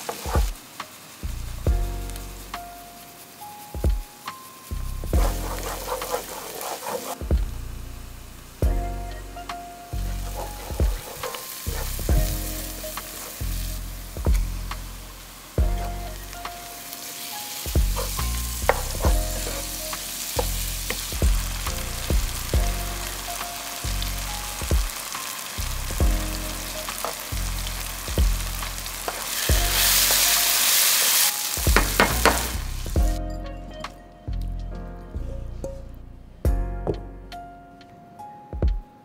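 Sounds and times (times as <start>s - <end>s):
food sizzling in a pan: 0.0s - 33.0s
low music beat: 1.2s - 3.0s, 3.8s - 6.4s, 7.1s - 17.0s, 17.7s - 30.7s, 31.6s - 37.9s
wooden spatula scraping pan: 5.2s - 7.2s, 10.2s - 13.6s, 17.1s - 22.3s, 28.8s - 33.0s.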